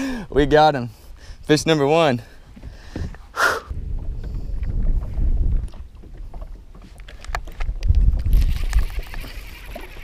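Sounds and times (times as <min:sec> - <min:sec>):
wind rumbling on microphone: 0:02.5 - 0:10.0.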